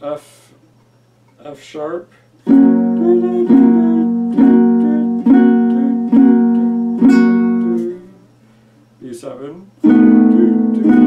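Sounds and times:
ukulele strums: 2.5s - 8.0s, 9.8s - 11.0s.

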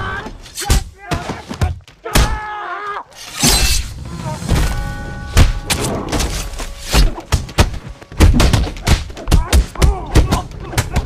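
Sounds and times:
punch and kick impacts: 6.9s - 11.0s.

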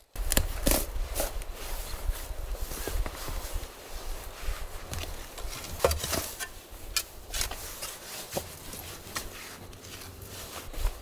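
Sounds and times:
spade digging into soil: 5.6s - 11.0s.

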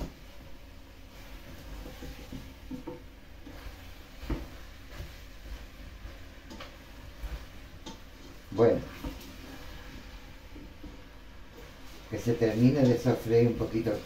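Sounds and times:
vegetables sizzling in a pot: 0.0s - 14.0s
spoon knocking and scraping pot: 1.7s - 5.1s.

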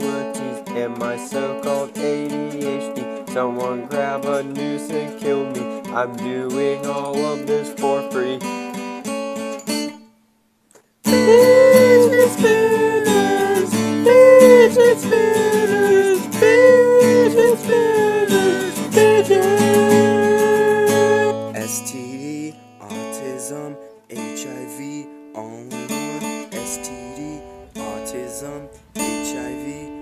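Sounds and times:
acoustic guitar: 0.0s - 30.0s
held gliding melody line: 11.1s - 21.4s.

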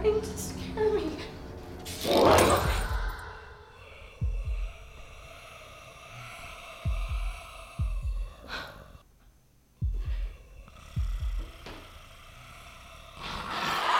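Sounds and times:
eerie drone: 0.0s - 9.0s, 9.8s - 13.9s
heartbeat thumps: 4.2s - 5.1s, 6.8s - 8.6s, 9.8s - 11.8s.

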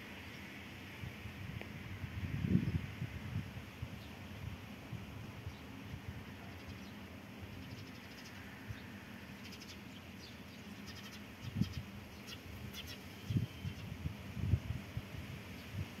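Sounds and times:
wind rumble on microphone: 0.3s - 6.6s, 11.4s - 11.9s, 12.5s - 16.0s.

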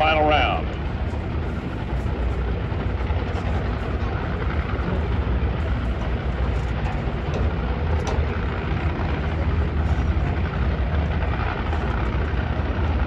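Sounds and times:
drag racing engines rumbling: 0.0s - 13.0s.

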